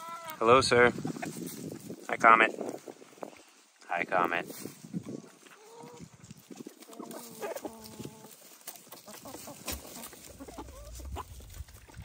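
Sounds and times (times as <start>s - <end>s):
hens clucking: 0.0s - 3.4s, 5.0s - 12.0s
hens pecking taps: 5.0s - 12.0s.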